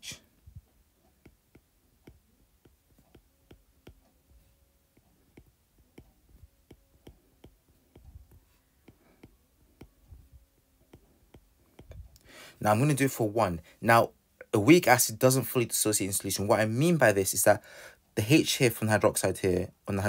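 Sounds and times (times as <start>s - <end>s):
stylus tapping on tablet screen: 1.0s - 12.2s.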